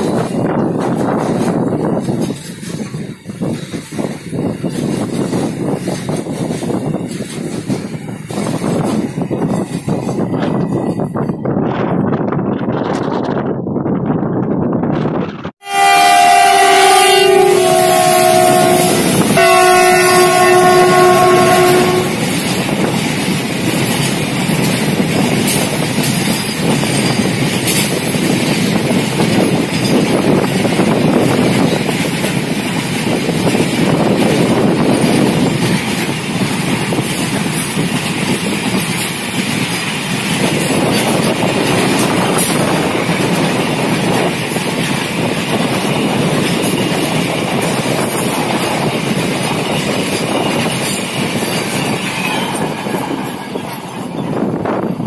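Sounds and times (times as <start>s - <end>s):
freight train wheels clicking: 0.0s - 13.4s, 16.3s - 55.0s
locomotive horn blasts: 15.6s - 22.2s.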